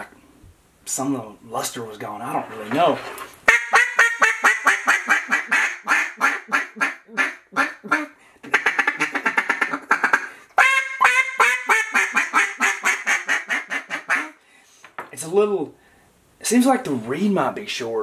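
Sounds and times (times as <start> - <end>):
duck call quacks: 3.5 - 14.4.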